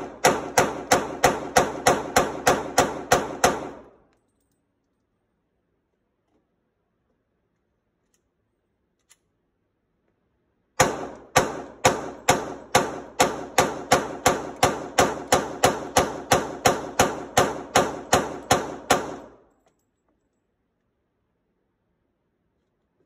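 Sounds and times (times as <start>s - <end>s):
pistol shots with echo: 0.0s - 4.0s, 10.8s - 19.4s.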